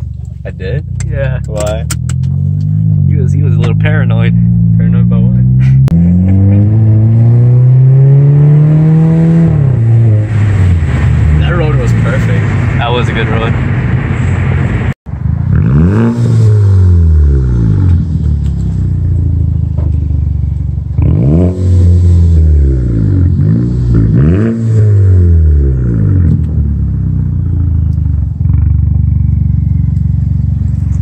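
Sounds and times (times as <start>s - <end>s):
car engine idling: 0.0s - 6.0s, 16.8s - 24.2s, 25.7s - 31.0s
car engine revving: 0.0s - 31.0s.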